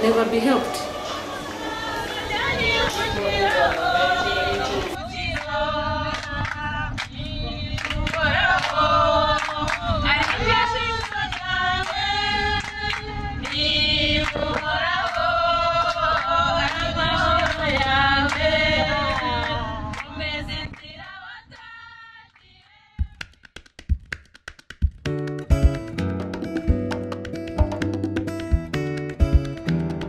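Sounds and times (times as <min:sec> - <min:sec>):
minibus rumble: 0:00.0 - 0:20.8
women singing together: 0:00.0 - 0:23.0
hand claps: 0:23.0 - 0:30.0.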